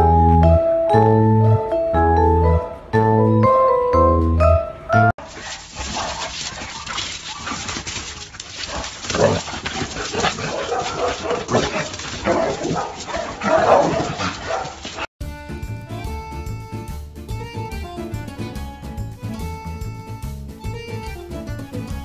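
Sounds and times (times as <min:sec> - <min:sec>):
dogs barking and whining: 0:05.2 - 0:15.1.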